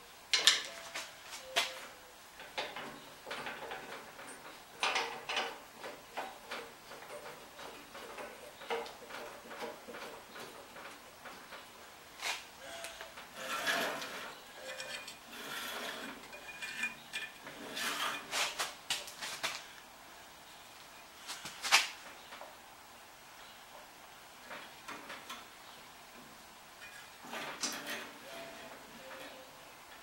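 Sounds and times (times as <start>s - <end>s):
metal clinks and scrapes: 12.2s - 18.8s.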